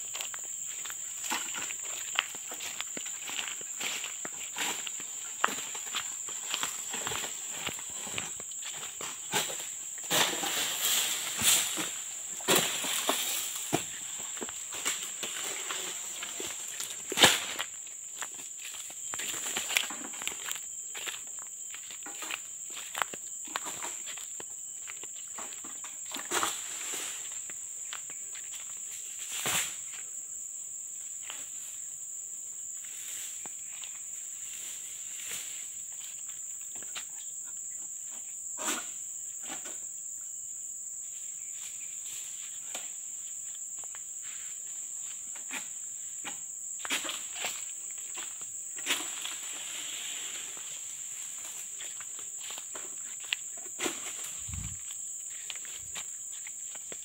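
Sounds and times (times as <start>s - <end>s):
footsteps on leaf litter: 0.0s - 9.3s, 49.0s - 57.0s
high-pitched insect drone: 0.0s - 57.0s.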